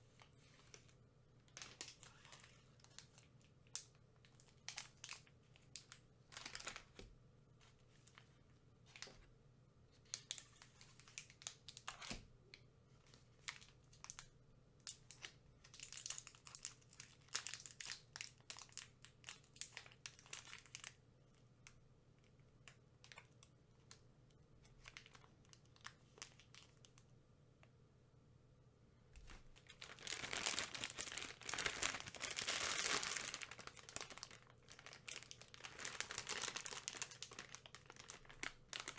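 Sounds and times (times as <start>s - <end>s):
candy wrapper crinkling: 1.5s - 7.0s, 14.9s - 21.0s, 24.6s - 27.0s, 29.2s - 38.9s.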